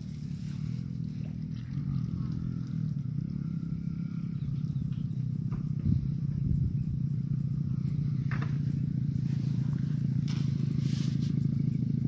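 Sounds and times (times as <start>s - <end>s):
small engine droning: 0.0s - 12.0s.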